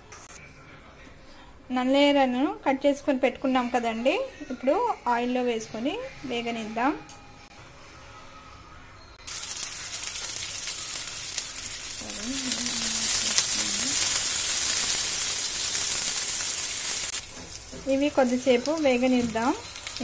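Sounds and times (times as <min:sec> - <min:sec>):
stems sizzling in hot oil: 0:09.2 - 0:20.0.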